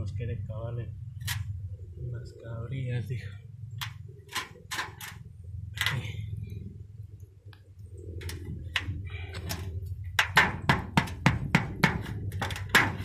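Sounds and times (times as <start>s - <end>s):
hammer striking nail: 10.2s - 13.0s.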